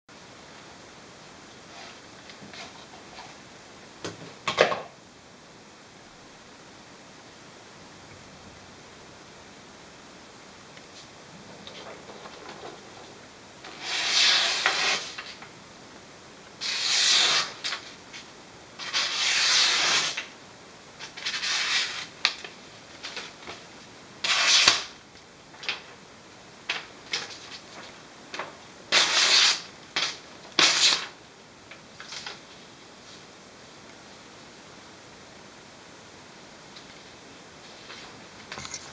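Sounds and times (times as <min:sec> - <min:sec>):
knife slicing through paper: 0:13.7 - 0:15.2, 0:16.6 - 0:17.8, 0:18.8 - 0:20.3, 0:21.1 - 0:22.1, 0:24.2 - 0:24.9, 0:28.9 - 0:31.0.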